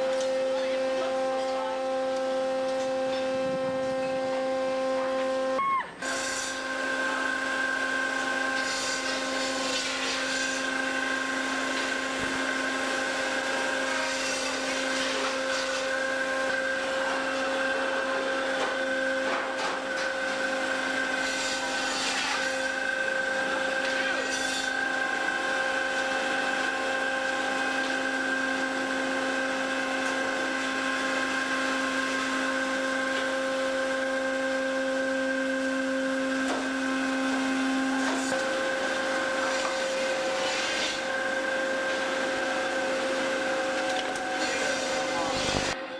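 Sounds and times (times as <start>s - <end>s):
machinery humming: 0.0s - 45.9s.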